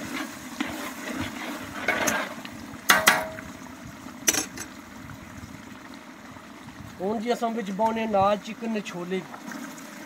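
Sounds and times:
curry simmering and bubbling: 0.0s - 10.0s
metal spoon scraping steel pot: 0.1s - 2.4s.

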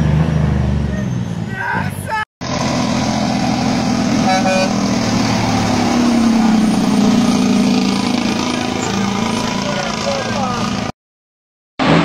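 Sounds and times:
truck diesel engine passing: 2.4s - 11.0s
truck horn toot: 4.0s - 9.4s.

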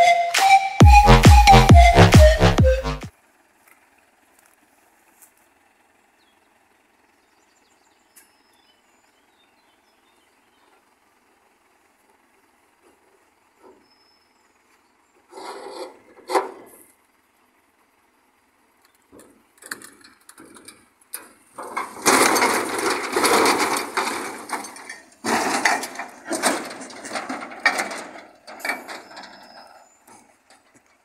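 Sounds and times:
metal clattering and scraping: 15.3s - 16.8s, 19.2s - 30.7s
scrapes and knocks: 15.3s - 16.8s, 21.6s - 30.9s.

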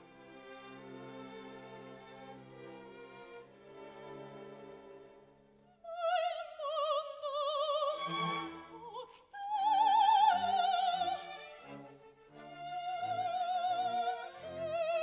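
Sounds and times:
soprano singing with vibrato: 5.7s - 11.7s, 12.7s - 15.0s.

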